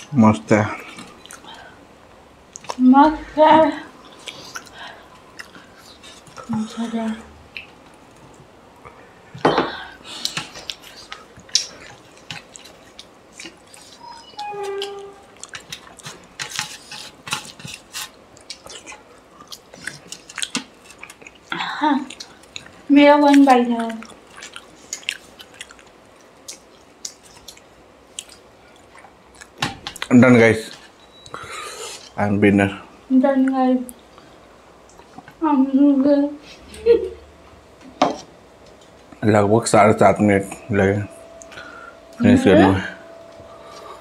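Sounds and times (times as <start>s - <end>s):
chewing and lip smacks: 0.9s - 1.6s, 2.5s - 2.8s, 4.0s - 6.5s, 10.2s - 14.0s, 15.3s - 16.4s, 18.3s - 30.1s
person humming: 42.1s - 43.0s.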